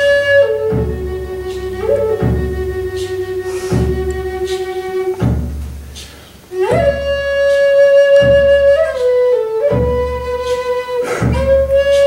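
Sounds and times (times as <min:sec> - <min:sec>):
flute playing slow melody: 0:00.0 - 0:05.5, 0:06.5 - 0:12.0
deep pulse: 0:00.0 - 0:07.3.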